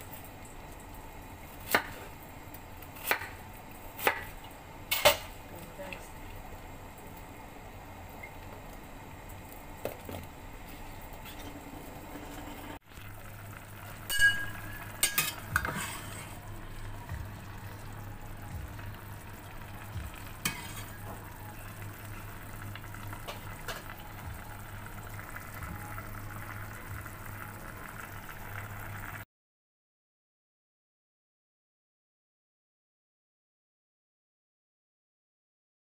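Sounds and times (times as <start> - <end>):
liquid bubbling in a pot: 6.2 - 29.2
utensil scraping metal pot: 10.6 - 12.8, 14.0 - 16.5, 20.2 - 21.2.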